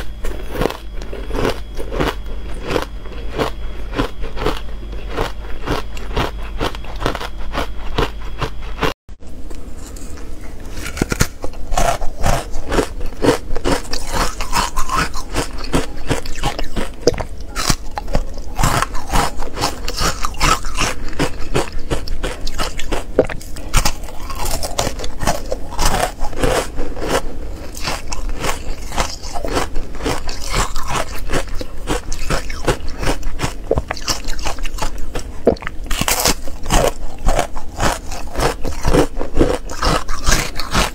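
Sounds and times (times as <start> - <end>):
ice crunching and chewing: 0.0 - 40.9.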